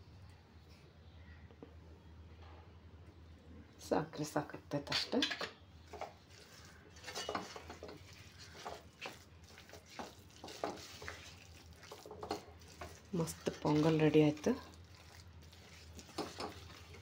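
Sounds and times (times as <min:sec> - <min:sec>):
wooden spatula scraping a pot: 0:05.9 - 0:17.0.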